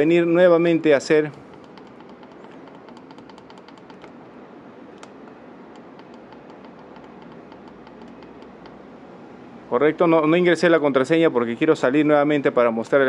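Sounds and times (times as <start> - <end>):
low background hum: 0.0 - 13.0
faint sharp clicks: 4.9 - 8.8.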